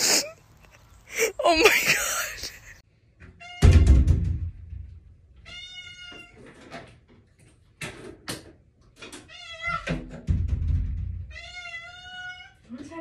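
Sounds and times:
cat meowing: 0:05.4 - 0:06.4, 0:09.3 - 0:09.9, 0:11.3 - 0:12.6.

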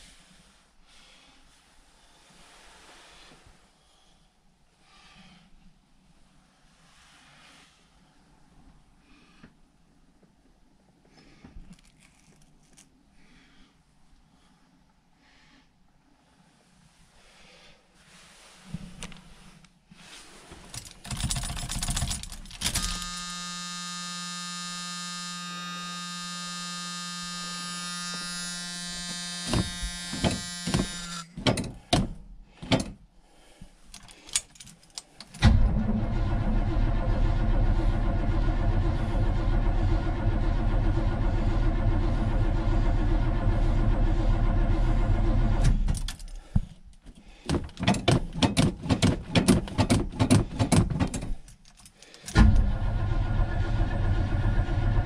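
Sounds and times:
keys jangling: 0:11.7 - 0:12.9, 0:20.7 - 0:23.1, 0:33.9 - 0:35.4, 0:51.4 - 0:52.4
starter cranking engine: 0:20.8 - 0:31.3, 0:35.3 - 0:46.4, 0:52.3 - 0:55.0
steady electric buzz: 0:22.8 - 0:31.3.

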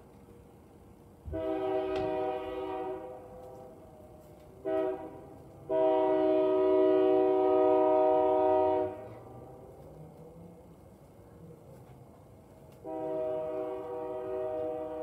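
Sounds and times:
locomotive air horn blasts: 0:01.3 - 0:03.4, 0:04.6 - 0:09.3, 0:12.8 - 0:15.0.

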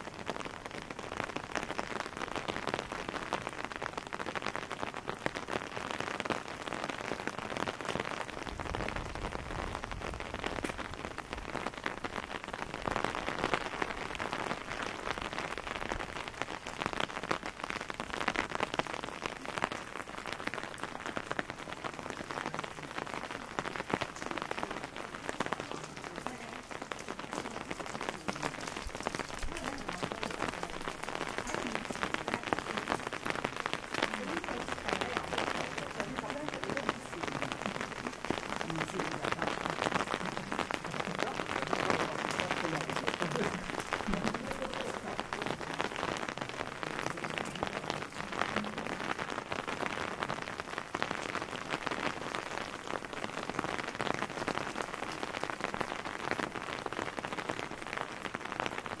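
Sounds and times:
rain on cobblestones: 0:00.0 - 0:59.0.

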